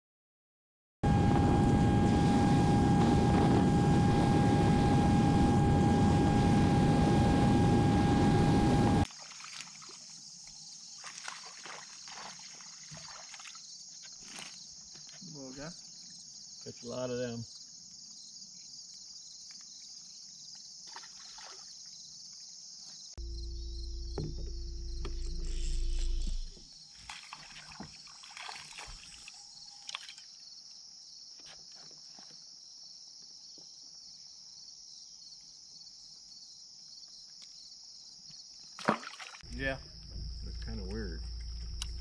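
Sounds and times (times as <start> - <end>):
low rumble with steady hum: 1.1 - 9.0, 23.2 - 26.6, 39.5 - 42.0
crickets chirping: 1.1 - 42.0.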